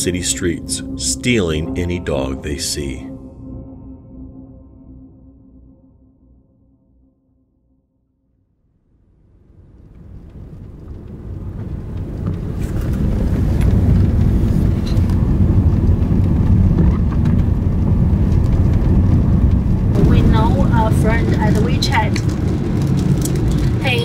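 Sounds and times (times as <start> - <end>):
car engine and road noise: 9.3 - 24.0.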